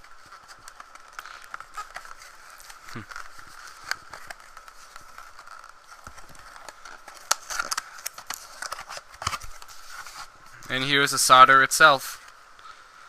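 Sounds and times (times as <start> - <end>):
faint steady whine: 0.0 - 13.0
cardboard flaps rubbing and scraping: 8.4 - 10.4.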